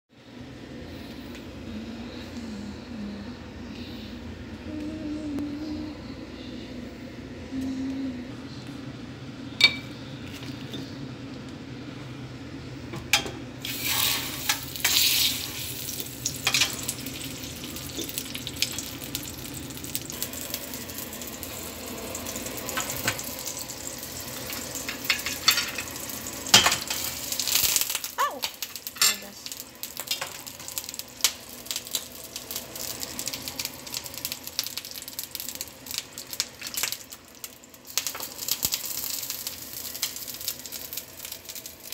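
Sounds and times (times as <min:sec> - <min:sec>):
seafood sizzling in a pan: 0:13.6 - 0:41.9
utensils clinking on pan: 0:24.8 - 0:25.9, 0:28.8 - 0:29.4.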